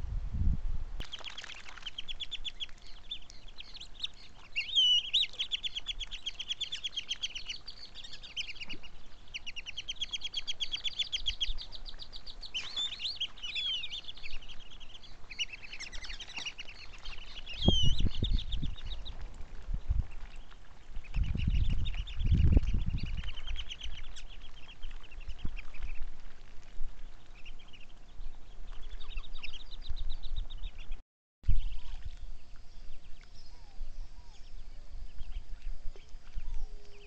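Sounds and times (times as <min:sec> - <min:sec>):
birds chattering: 0:01.0 - 0:19.2.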